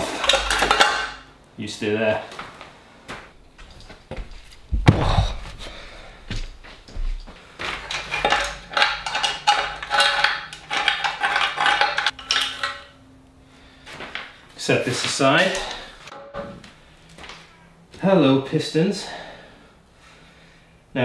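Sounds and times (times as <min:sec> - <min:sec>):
metal parts clinking: 0:00.0 - 0:01.3, 0:07.8 - 0:13.0.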